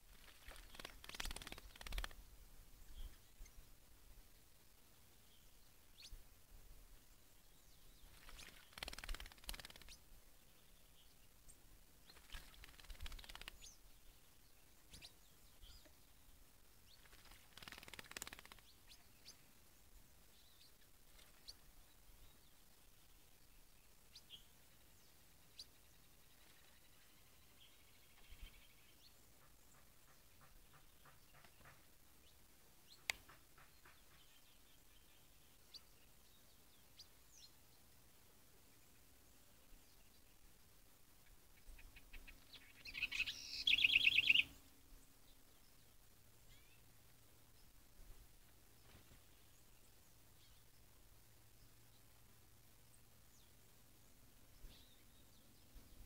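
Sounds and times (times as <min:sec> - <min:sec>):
faint bird chirps: 0:00.0 - 0:56.0
bird wings splashing water: 0:00.1 - 0:02.2, 0:08.1 - 0:10.0, 0:12.1 - 0:13.6, 0:17.0 - 0:18.6.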